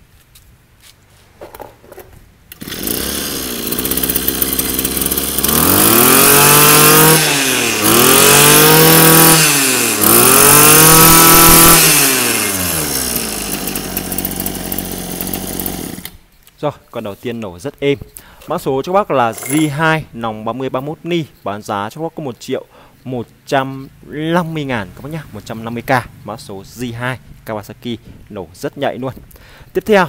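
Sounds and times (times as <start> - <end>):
brush cutter engine idling: 2.5 - 16.2
brush cutter engine pull-started: 2.5 - 16.2
brush cutter engine revving: 2.5 - 16.2.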